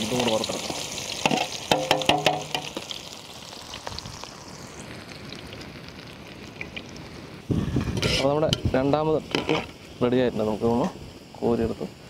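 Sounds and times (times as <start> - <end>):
onions sizzling in oil: 0.0 - 12.0.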